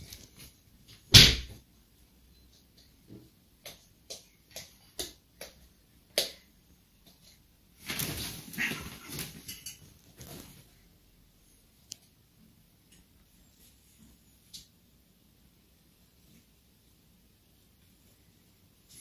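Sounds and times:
cats crying and scrambling: 7.8 - 10.6.

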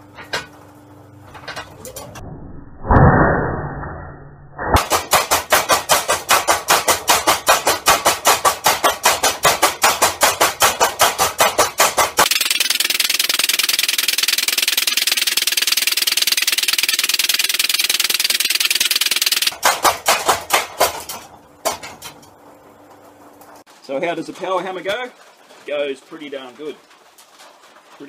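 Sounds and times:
power hammer pounding hot steel: 4.7 - 22.0.

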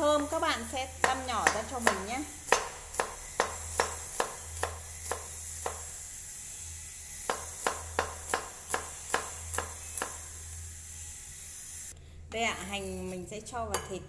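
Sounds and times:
cleaver chopping on wooden board: 1.0 - 5.9, 7.3 - 10.2.

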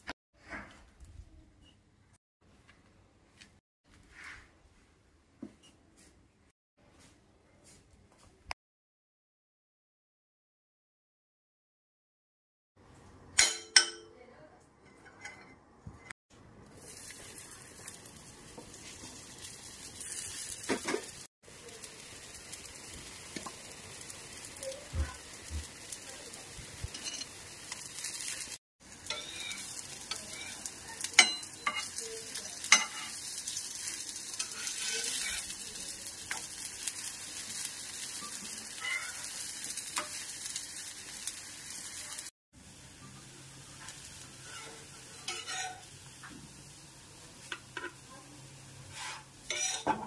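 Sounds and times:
patties sizzling in oil: 16.6 - 50.0
metal spatula scraping pan: 26.9 - 27.4, 29.0 - 32.0, 34.3 - 35.5, 38.2 - 39.4, 43.8 - 45.9, 48.8 - 50.0.

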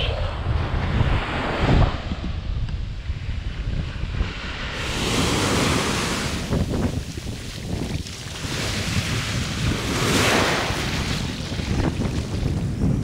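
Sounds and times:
wind on microphone: 0.0 - 13.0
waves breaking on sand: 4.2 - 13.0.

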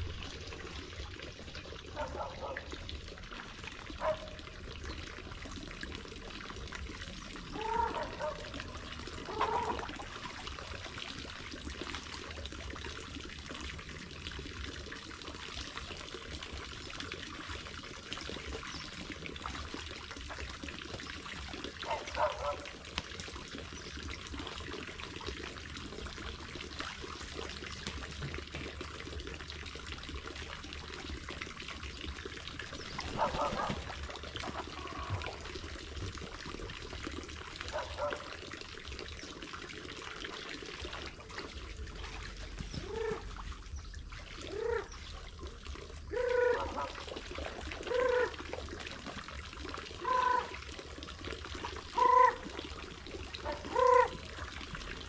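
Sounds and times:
water trickling into trough: 0.0 - 55.0
waterfowl calling: 42.7 - 43.3, 46.1 - 47.0, 47.9 - 48.4, 50.0 - 50.6, 52.0 - 52.4, 53.4 - 54.2.

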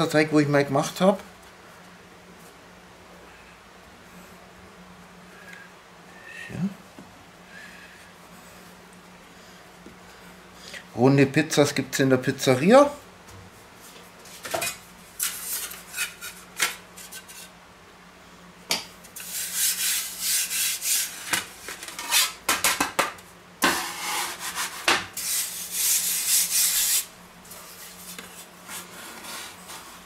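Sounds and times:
hands scraping flour on metal: 19.1 - 21.3.

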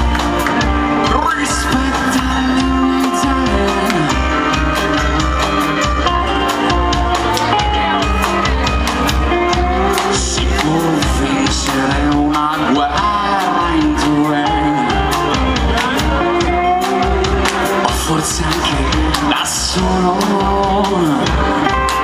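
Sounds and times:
drum kit beat: 0.0 - 22.0
electric guitars and bass: 0.0 - 22.0
man singing: 0.6 - 22.0.

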